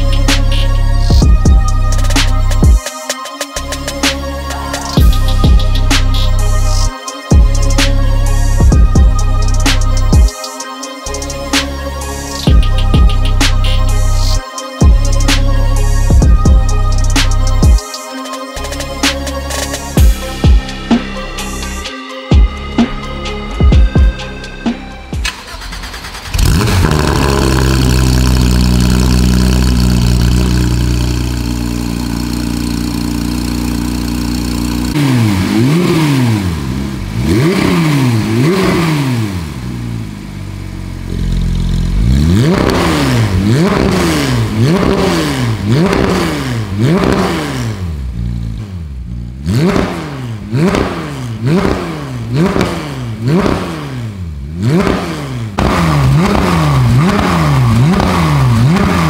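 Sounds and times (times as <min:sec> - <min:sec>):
car engine idling: 0:22.4 - 0:59.0
car engine revving in blips: 0:22.4 - 0:59.0.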